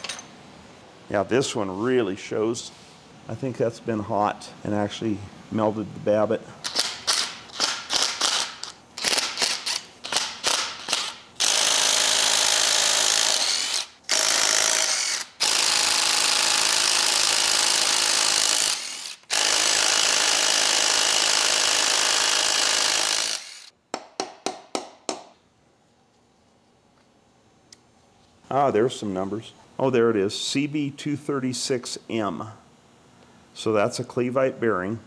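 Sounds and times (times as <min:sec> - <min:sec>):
impact wrench hammering: 0:06.7 - 0:25.4.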